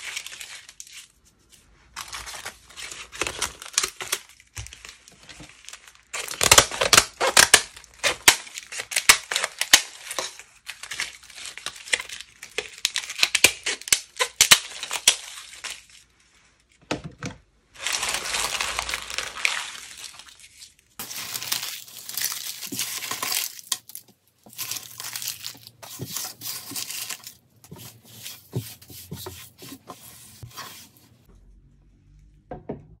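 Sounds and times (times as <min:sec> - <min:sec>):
dried slime crackling when crushed: 0:17.8 - 0:25.8.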